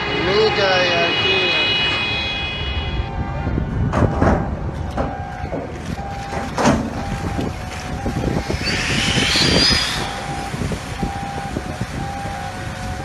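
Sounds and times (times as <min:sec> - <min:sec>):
steady low rumble: 0:05.7 - 0:13.0
on-off beeping tone: 0:07.0 - 0:12.4
water churning and hissing: 0:07.2 - 0:13.0.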